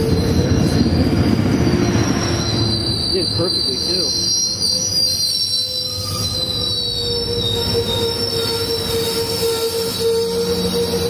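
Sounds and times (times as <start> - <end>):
train cars low rumble: 0.0 - 11.0
wheels squealing: 0.0 - 11.0.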